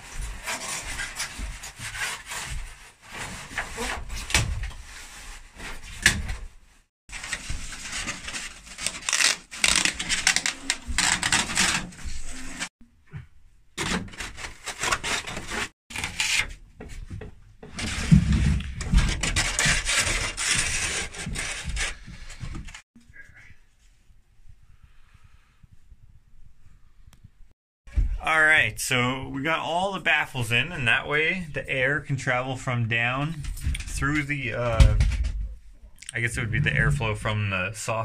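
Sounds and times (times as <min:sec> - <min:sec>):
plastic scraping against wood: 0:07.1 - 0:12.7, 0:17.6 - 0:22.8.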